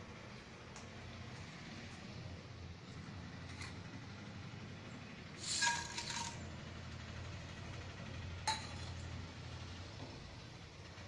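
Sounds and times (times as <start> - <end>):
steel plate ringing: 5.4 - 6.4
seeds clattering into pan: 5.4 - 6.5.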